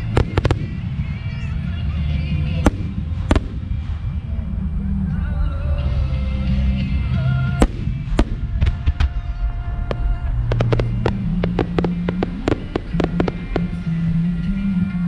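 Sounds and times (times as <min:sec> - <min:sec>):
fireworks bursting with bangs: 0:00.0 - 0:04.2, 0:07.4 - 0:15.0
fireworks crackling: 0:00.0 - 0:04.4, 0:07.4 - 0:15.0
music playing: 0:00.0 - 0:15.0.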